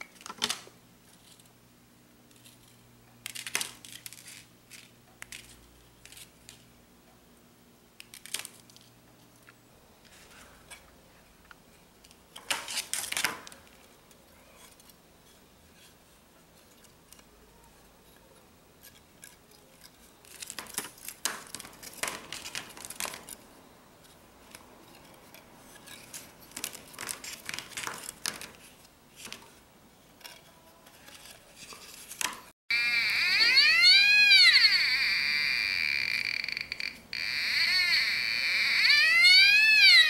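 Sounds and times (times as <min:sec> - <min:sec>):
wire scraping and rustling: 0:24.4 - 0:32.5.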